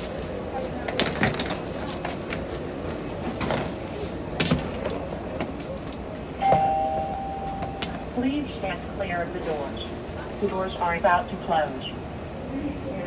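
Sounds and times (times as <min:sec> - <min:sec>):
hubbub of passengers: 0:00.0 - 0:13.0
electronic two-tone chime: 0:06.4 - 0:07.8.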